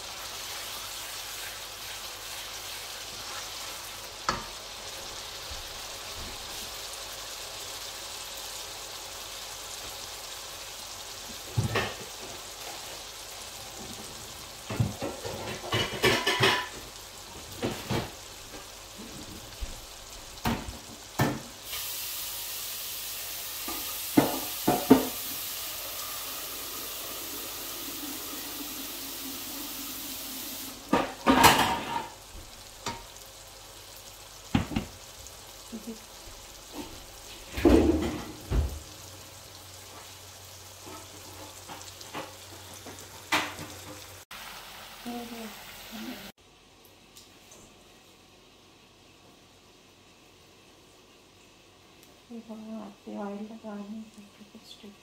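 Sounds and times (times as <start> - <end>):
curry sizzling in a wok: 0.0 - 55.0
spoon knocking against pan: 23.7 - 25.2.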